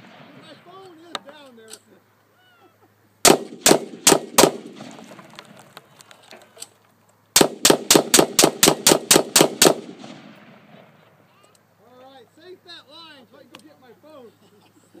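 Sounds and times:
gunshots: 0:03.2 - 0:05.6, 0:07.4 - 0:11.0.

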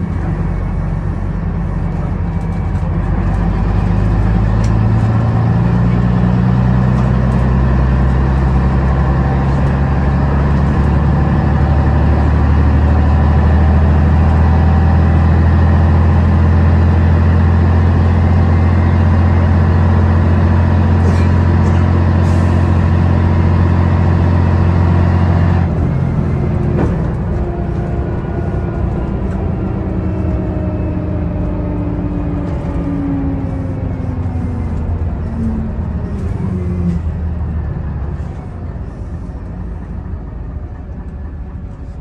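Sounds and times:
bus diesel engine running: 0:00.0 - 0:42.0.

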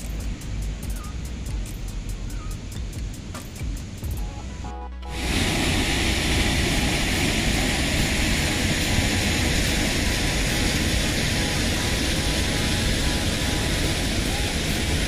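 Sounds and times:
waterfall rushing: 0:05.1 - 0:15.0.

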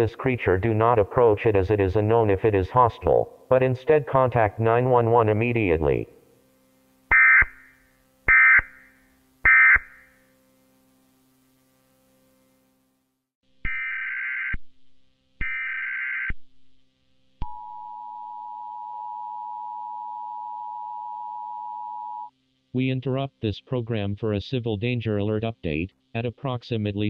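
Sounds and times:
buzzing data bursts: 0:07.1 - 0:10.3.

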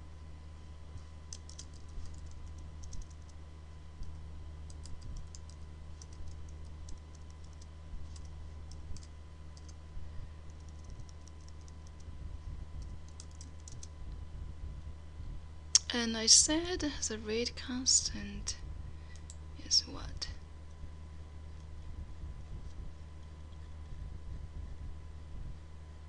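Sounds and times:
low electrical hum: 0:00.0 - 0:26.0
keyboard typing: 0:01.3 - 0:03.4, 0:04.1 - 0:09.8, 0:10.4 - 0:12.1, 0:12.8 - 0:13.9.

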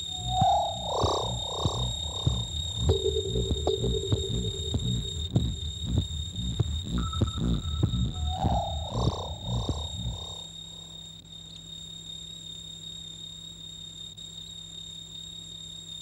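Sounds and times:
low pulsing beats: 0:00.0 - 0:10.6
warbling synthesized tone: 0:00.0 - 0:11.0
steady hum: 0:00.0 - 0:11.2
thin high whine: 0:00.0 - 0:12.0.

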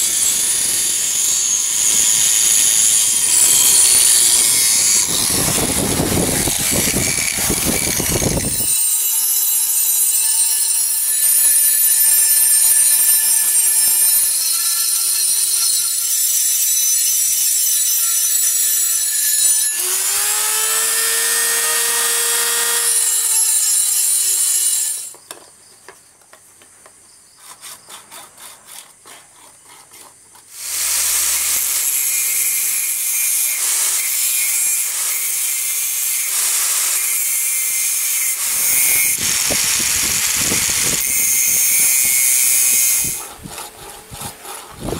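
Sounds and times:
angle grinder grinding steel: 0:00.0 - 0:25.2, 0:27.4 - 0:44.9
rotary tool whining: 0:00.0 - 0:25.4, 0:27.4 - 0:44.9
hacksaw strokes cutting antler: 0:03.2 - 0:10.4, 0:27.4 - 0:32.9, 0:38.4 - 0:44.9.

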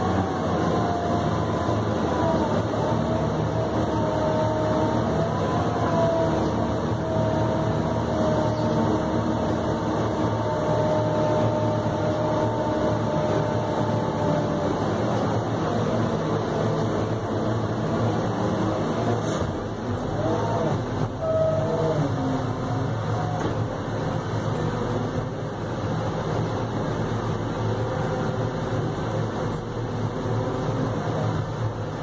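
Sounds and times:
wavering whine: 0:00.0 - 0:25.8
diesel engine running: 0:00.0 - 0:32.0.

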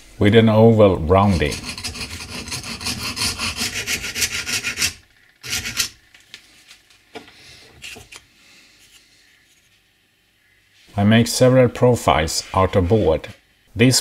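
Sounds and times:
hand file rasping on plywood: 0:01.2 - 0:05.9.

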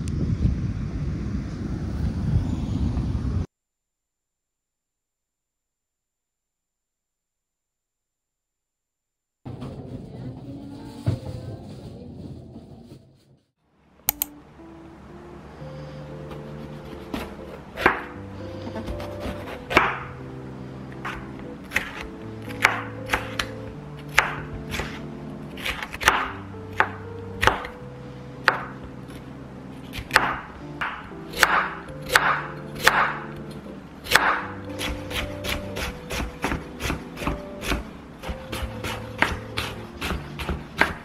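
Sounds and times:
soft background music: 0:13.8 - 0:41.0
knife chopping on cutting board: 0:16.3 - 0:20.1, 0:21.0 - 0:27.8, 0:28.4 - 0:28.8, 0:29.9 - 0:33.5, 0:34.1 - 0:41.0.

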